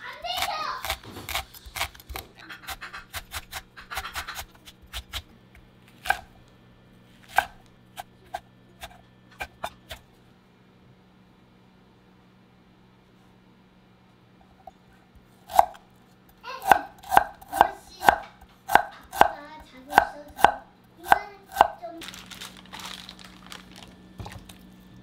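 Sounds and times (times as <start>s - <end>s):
knife chopping on cutting board: 0.3s - 5.3s, 6.0s - 6.3s, 7.2s - 10.0s, 15.5s - 15.8s, 16.6s - 21.8s.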